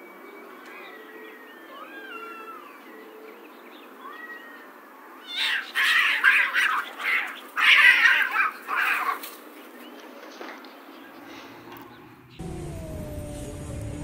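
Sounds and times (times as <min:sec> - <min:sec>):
cats fighting and screeching: 0:01.6 - 0:02.8, 0:03.9 - 0:09.7.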